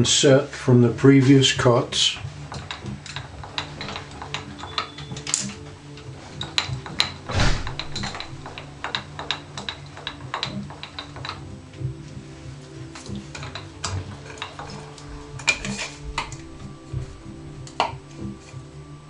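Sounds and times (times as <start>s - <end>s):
louder knock: 7.3s - 8.4s.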